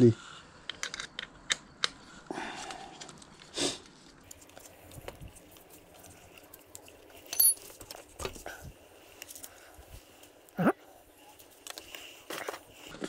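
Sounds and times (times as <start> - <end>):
metal tools clinking: 7.2 - 8.0.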